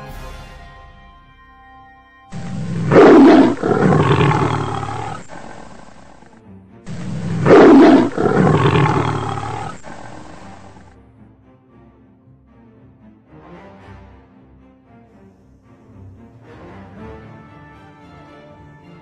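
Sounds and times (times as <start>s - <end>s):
large animal roaring: 2.4s - 6.3s, 6.9s - 10.9s.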